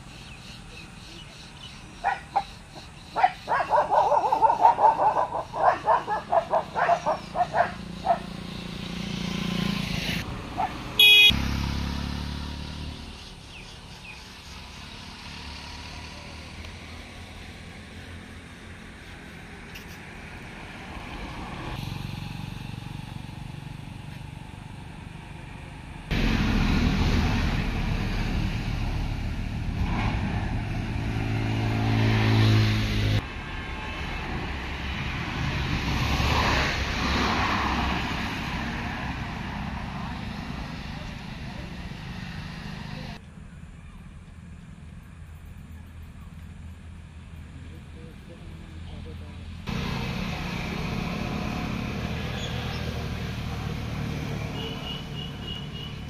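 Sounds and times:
passing road traffic: 0:00.0 - 0:56.0
vehicle engine rumbling: 0:00.0 - 0:56.0
dog barking: 0:02.0 - 0:02.5, 0:03.2 - 0:08.3, 0:10.6 - 0:10.8.

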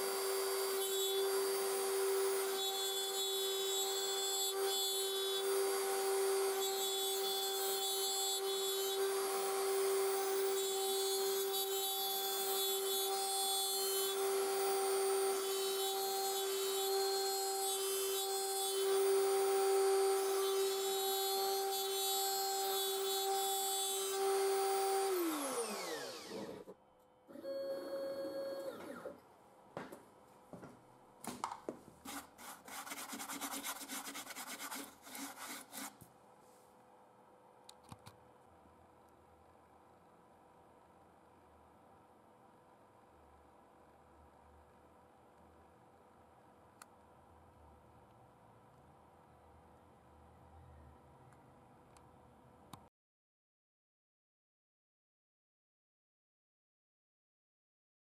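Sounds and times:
router spindle cutting wood: 0:00.0 - 0:26.7.

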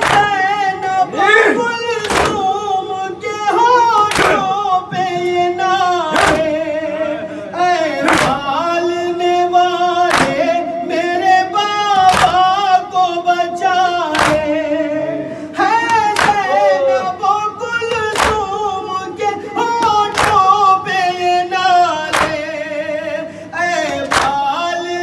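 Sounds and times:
hands beaten on chests: 0:00.0 - 0:00.3, 0:02.0 - 0:02.5, 0:10.1 - 0:10.4, 0:14.1 - 0:14.5, 0:15.9 - 0:16.4, 0:18.1 - 0:18.5, 0:20.1 - 0:20.5, 0:22.1 - 0:22.4, 0:24.1 - 0:24.4
men singing a lament: 0:00.0 - 0:25.0.

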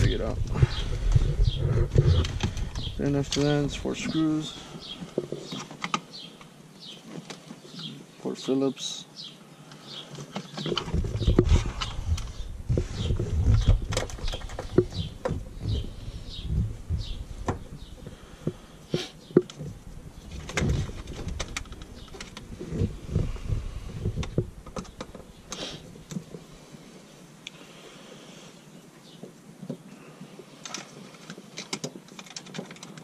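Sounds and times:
small clicks of metal and plastic: 0:30.6 - 0:33.0.

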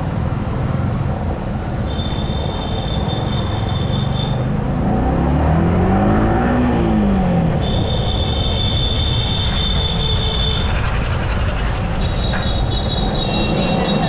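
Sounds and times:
wind and road noise: 0:00.0 - 0:14.0
high steady squeal: 0:01.8 - 0:04.5, 0:07.5 - 0:14.0.

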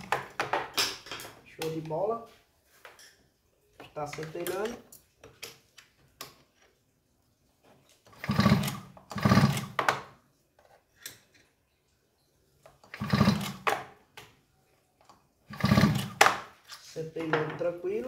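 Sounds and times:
recoil starter whirring rattle: 0:08.2 - 0:09.8, 0:15.5 - 0:16.2.

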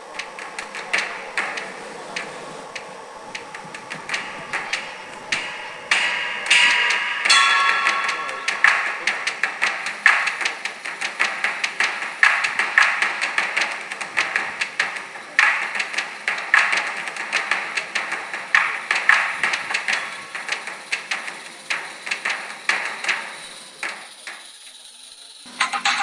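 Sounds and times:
model train wheels clicking: 0:00.0 - 0:26.0.

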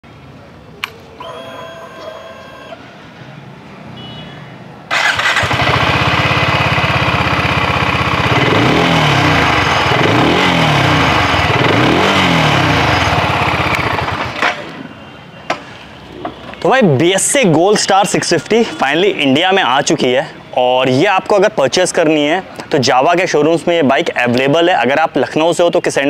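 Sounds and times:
motorcycle engine idling and revving: 0:04.9 - 0:14.9.

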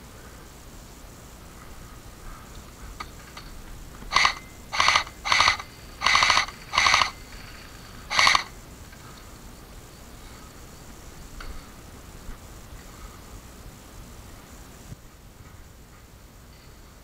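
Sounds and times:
airsoft gun full-auto bursts: 0:04.1 - 0:08.6.

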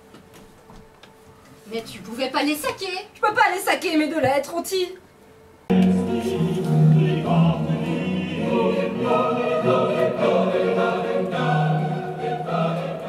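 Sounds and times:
choir singing held notes: 0:05.7 - 0:13.0.

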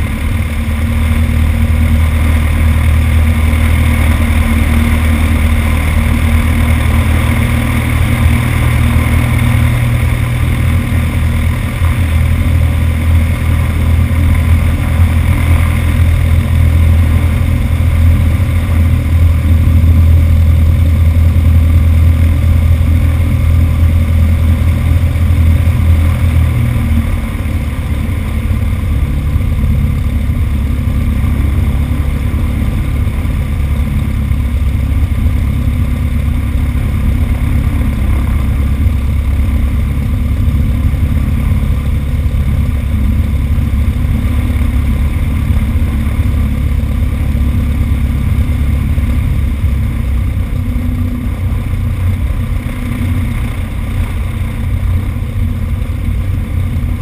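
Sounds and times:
light aircraft propeller engine: 0:00.0 - 0:57.0.

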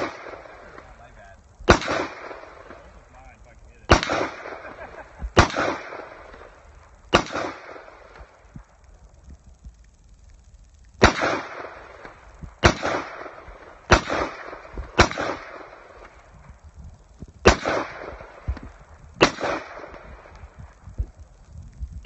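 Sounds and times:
rifle shots with echo: 0:00.0 - 0:08.5, 0:11.0 - 0:16.3, 0:17.4 - 0:21.0.

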